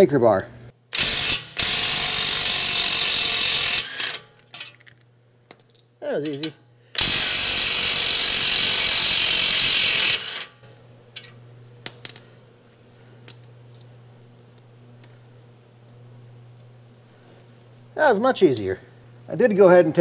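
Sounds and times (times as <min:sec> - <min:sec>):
low steady hum: 0:10.6 - 0:20.0.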